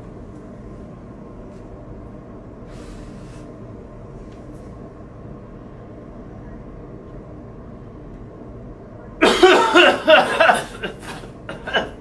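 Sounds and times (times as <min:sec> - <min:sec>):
low room rumble: 0:00.0 - 0:12.0.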